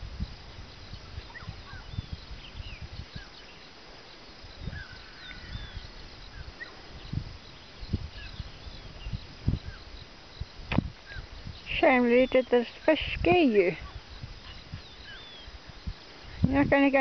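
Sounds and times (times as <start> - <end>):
birds chirping and whistling: 1.0 - 3.6, 4.5 - 10.0, 13.8 - 16.0
low thumps and rumble: 10.4 - 11.6.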